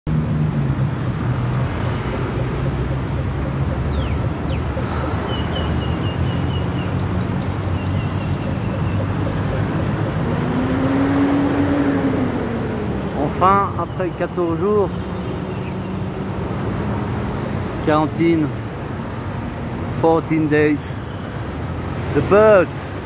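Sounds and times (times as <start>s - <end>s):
city traffic noise: 0.1s - 23.0s
small birds chirping: 1.6s - 10.9s.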